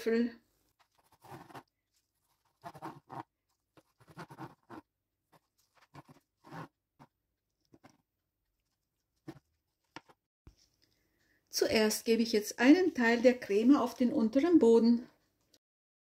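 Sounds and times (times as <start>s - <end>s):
knife cutting sponge cake: 0.7s - 8.1s.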